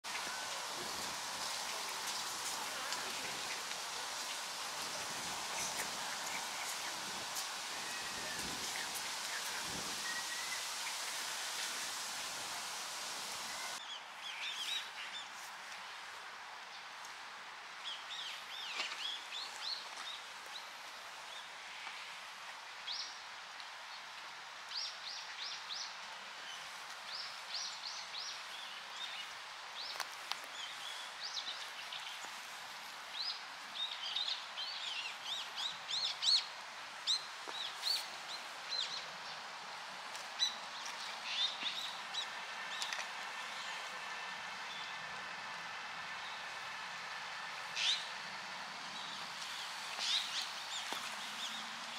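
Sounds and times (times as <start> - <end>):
stream flowing: 0.1 - 13.9.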